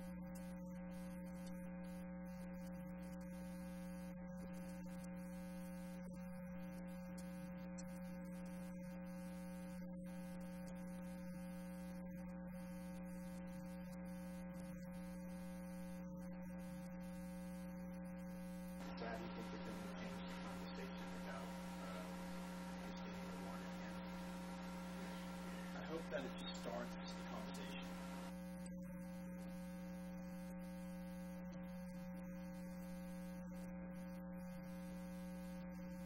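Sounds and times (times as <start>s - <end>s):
electrical mains hum: 0.0s - 36.0s
faint hiss: 18.8s - 28.3s.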